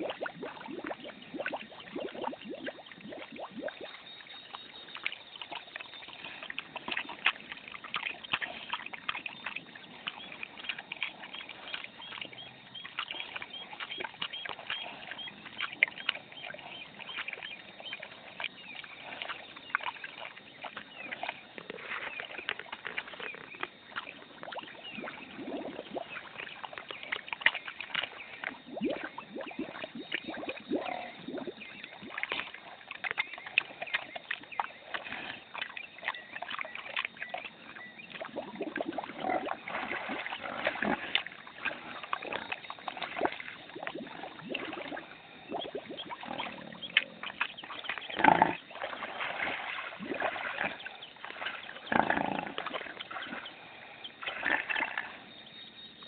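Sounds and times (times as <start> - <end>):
water sloshing: 0.0 - 56.0
pig grunting and snuffling: 30.8 - 31.2, 34.9 - 36.3, 38.6 - 45.0, 46.0 - 53.6, 54.3 - 55.3.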